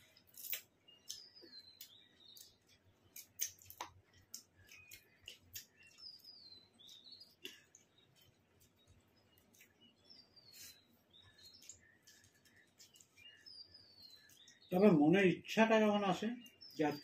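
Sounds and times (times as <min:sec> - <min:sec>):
faint bird chirps: 0:00.0 - 0:17.0
hand-eating clicks and smacks: 0:00.3 - 0:09.9, 0:11.4 - 0:13.3.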